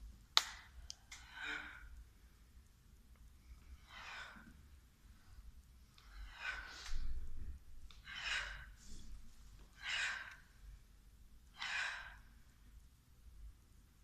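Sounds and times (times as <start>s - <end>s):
woman breathing out: 1.1s - 2.0s, 3.7s - 4.7s, 6.0s - 10.6s, 11.6s - 12.4s.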